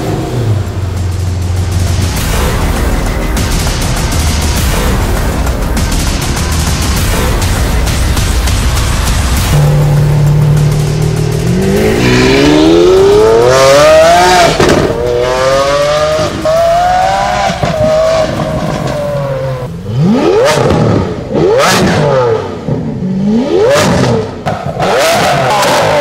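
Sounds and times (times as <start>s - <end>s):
car exhaust accelerating hard: 0.0s - 26.0s
engine rev blips: 6.3s - 26.0s.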